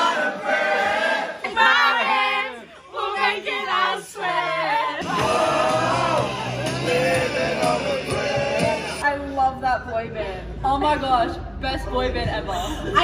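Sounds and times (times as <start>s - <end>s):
group singing together: 0.0s - 9.0s.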